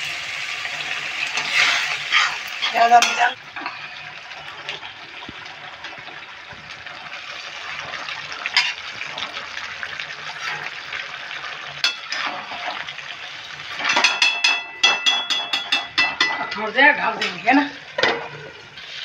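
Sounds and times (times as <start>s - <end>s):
gravy sizzling in a metal pan: 0.0s - 19.0s
metal spatula scraping a pan: 0.9s - 4.8s, 8.0s - 9.4s, 10.2s - 13.0s, 13.6s - 19.0s.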